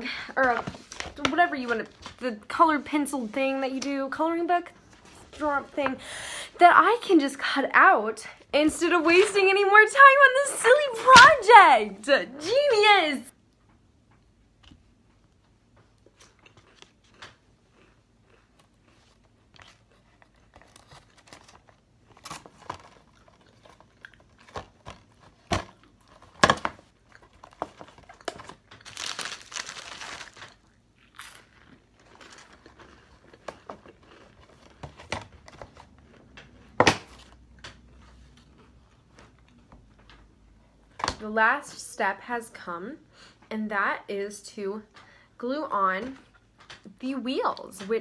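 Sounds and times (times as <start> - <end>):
paper rustling: 27.6 - 30.6.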